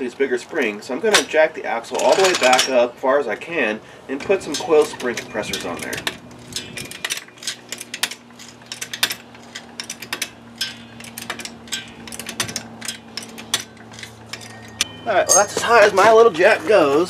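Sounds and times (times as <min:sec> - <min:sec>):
jack pumping metallic clicks: 0:04.2 - 0:16.3.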